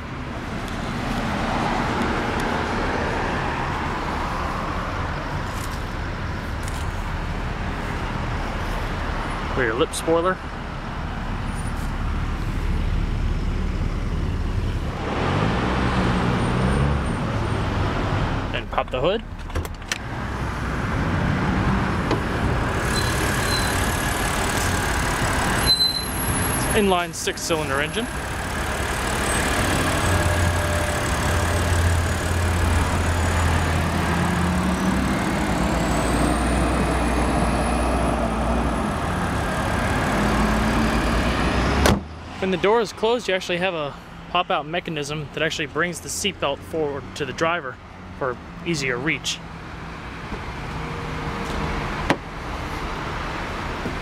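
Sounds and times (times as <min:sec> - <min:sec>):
passing vehicle: 0:00.0 - 0:54.0
car engine idling: 0:22.1 - 0:25.6, 0:26.8 - 0:33.8.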